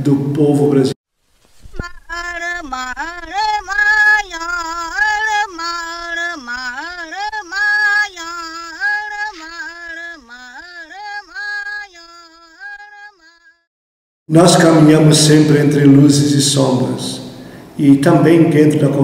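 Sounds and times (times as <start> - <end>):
woman singing unaccompanied: 1.7 - 13.7.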